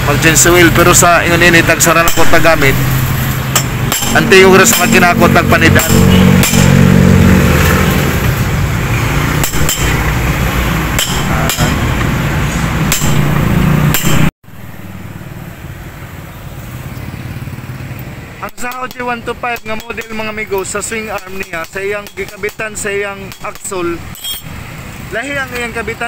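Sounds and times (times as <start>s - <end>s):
engine rumble: 0.0s - 25.7s
tools knocking on metal: 3.5s - 5.1s, 9.4s - 10.1s, 11.0s - 12.1s, 18.5s - 24.4s.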